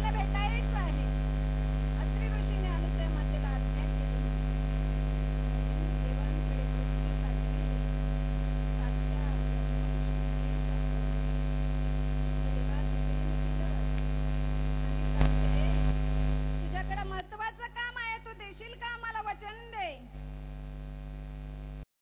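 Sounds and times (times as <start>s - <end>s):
burst of noise: 0.0s - 17.1s
electrical mains hum: 0.0s - 21.8s.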